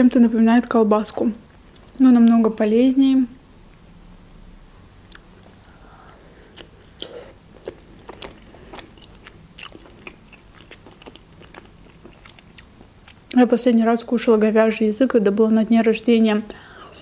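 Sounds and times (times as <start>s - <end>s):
wet mouth clicks: 5.1s - 8.9s
person chewing: 5.1s - 13.4s.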